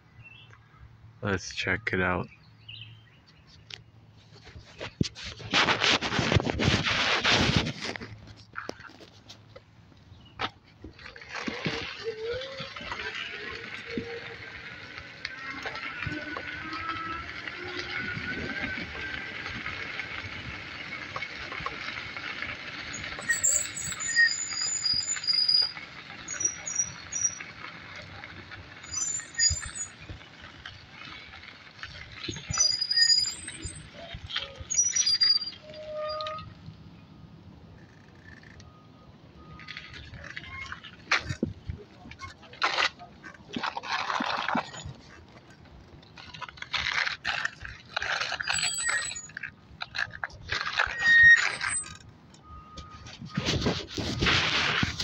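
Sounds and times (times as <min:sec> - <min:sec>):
scooter brakes squealing and scraping: 0:03.3 - 0:09.6, 0:10.2 - 0:36.7, 0:37.8 - 0:55.0
tyres rolling over gravel: 0:04.2 - 0:36.8, 0:39.4 - 0:55.0
low brake squeal: 0:22.9 - 0:27.6, 0:28.8 - 0:30.2, 0:32.3 - 0:36.6, 0:48.3 - 0:49.5, 0:50.6 - 0:54.8
high-pitched brake squeals: 0:22.9 - 0:27.7, 0:28.8 - 0:30.2, 0:32.3 - 0:36.6, 0:48.3 - 0:49.5, 0:50.6 - 0:54.2.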